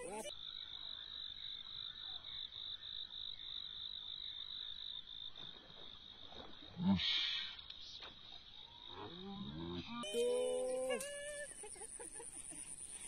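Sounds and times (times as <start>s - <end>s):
chorus of calling frogs: 0.0s - 5.0s.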